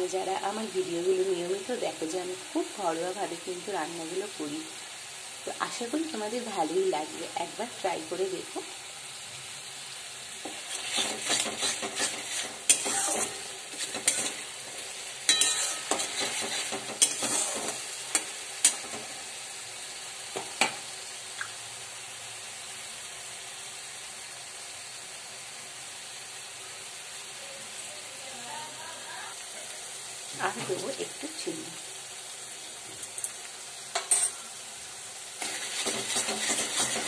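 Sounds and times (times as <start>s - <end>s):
paste sizzling in oil: 0.0s - 37.0s
spatula scraping a pan: 10.3s - 19.2s, 35.4s - 37.0s.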